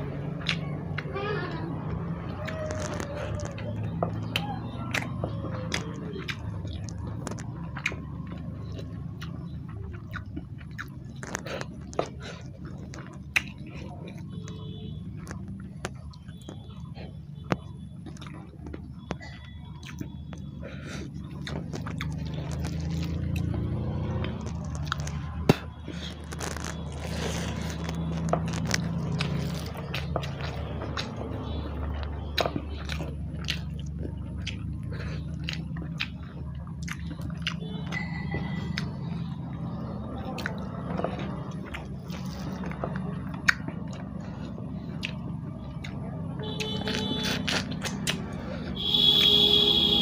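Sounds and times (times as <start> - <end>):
chewing and mouth sounds: 0.0 - 49.3.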